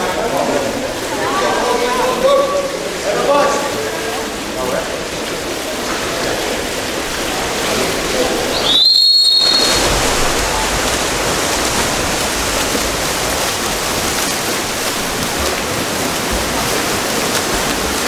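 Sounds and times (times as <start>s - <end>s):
water splashing in pool: 0.0s - 18.0s
referee's whistle blast: 8.5s - 9.9s.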